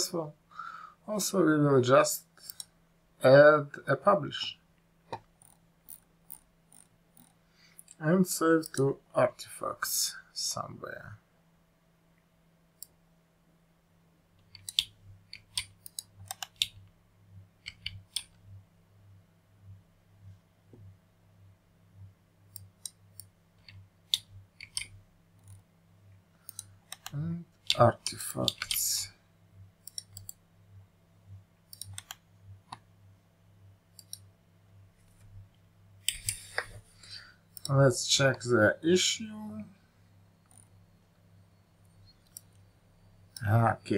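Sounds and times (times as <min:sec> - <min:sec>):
faint low hum: 0:00.0 - 0:43.9
computer keyboard keystrokes: 0:14.4 - 0:16.8, 0:17.6 - 0:18.4, 0:22.6 - 0:24.9, 0:31.7 - 0:32.2
mouse clicks: 0:14.4 - 0:16.8, 0:17.6 - 0:18.4, 0:22.5 - 0:25.6, 0:26.4 - 0:28.8, 0:29.8 - 0:30.4, 0:31.7 - 0:32.8, 0:33.9 - 0:34.3, 0:42.1 - 0:42.6.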